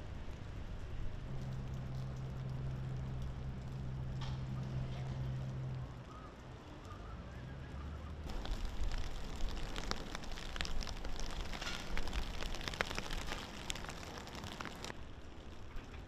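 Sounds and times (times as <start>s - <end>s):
low rumble: 0.0s - 6.1s
water pattering and splashing: 1.3s - 5.8s, 8.3s - 15.0s.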